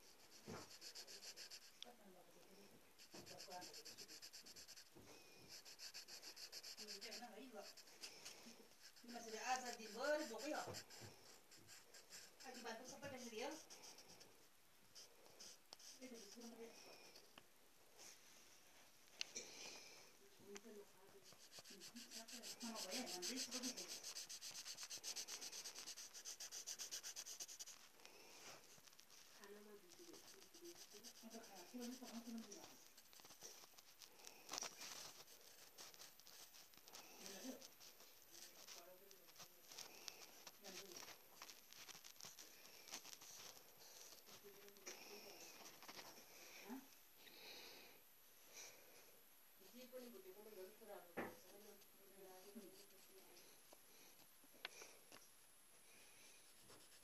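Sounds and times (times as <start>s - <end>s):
pencil scribbling on paper: 0.0s - 1.8s, 3.0s - 14.3s, 14.9s - 16.8s, 21.1s - 46.1s, 56.5s - 57.0s.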